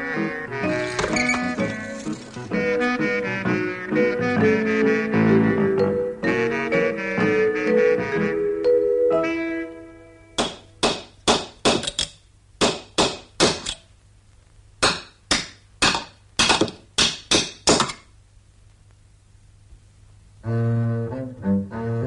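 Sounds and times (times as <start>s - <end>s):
music: 0.0s - 10.9s, 20.4s - 22.0s
hammering blows: 10.4s - 11.9s.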